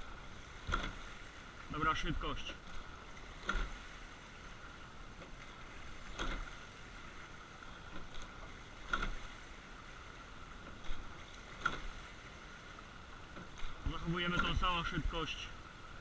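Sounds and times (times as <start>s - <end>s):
water rushing along hull: 0.0s - 16.0s
oars knocking in oarlocks: 0.6s - 1.1s, 2.6s - 3.9s, 5.2s - 6.6s, 7.8s - 9.4s, 10.6s - 12.0s, 13.3s - 15.0s.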